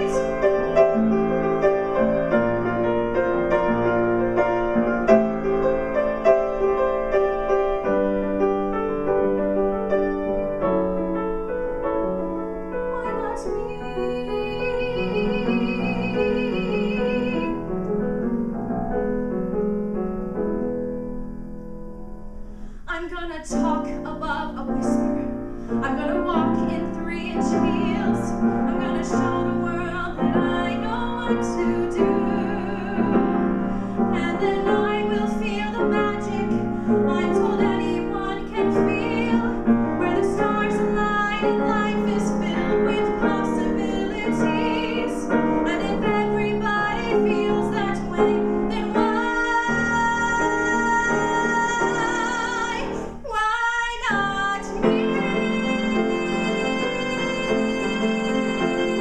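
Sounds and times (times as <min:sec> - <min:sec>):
woman singing with vibrato: 0:00.0 - 0:07.1, 0:12.7 - 0:17.7, 0:22.8 - 0:59.0
grand piano: 0:00.0 - 0:59.0.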